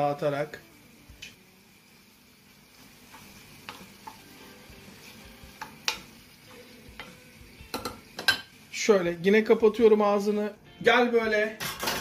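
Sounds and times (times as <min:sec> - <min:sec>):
sauce sizzling in pan: 0:00.0 - 0:11.4
spoon tapping pan: 0:03.1 - 0:04.3, 0:05.5 - 0:08.6.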